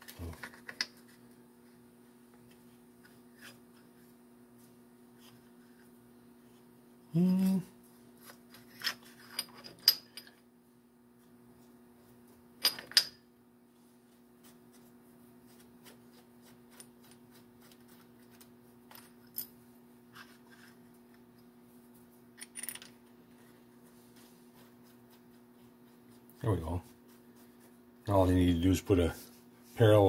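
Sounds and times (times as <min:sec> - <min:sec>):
steady low hum: 0:00.0 - 0:30.0
metal parts clinking on vise: 0:12.6 - 0:13.2.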